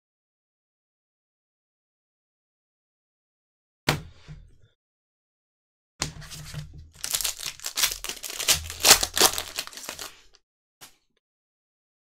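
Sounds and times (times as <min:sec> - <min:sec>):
foil wrapper crinkling and tearing: 0:07.0 - 0:10.4.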